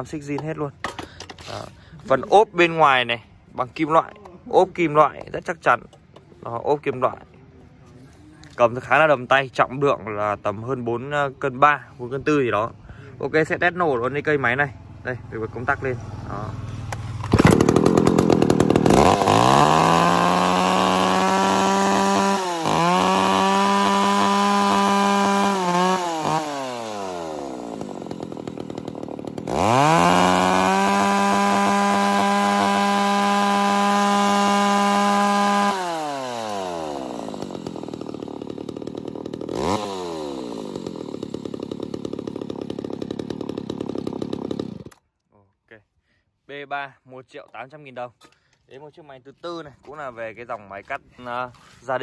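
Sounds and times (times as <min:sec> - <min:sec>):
chainsaw engine revving and idling: 0:13.4 - 0:45.0.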